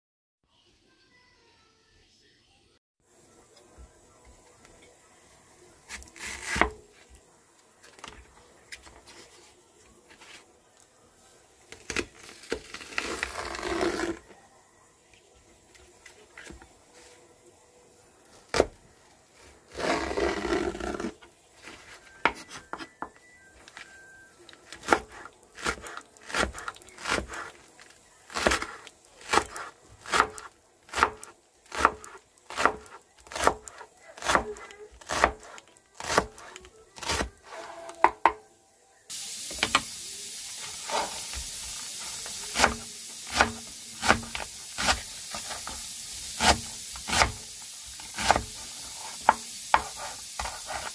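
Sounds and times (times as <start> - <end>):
knife chopping on wooden board: 24.8 - 27.5, 28.3 - 37.4, 40.8 - 50.9
steady hiss: 39.1 - 50.9.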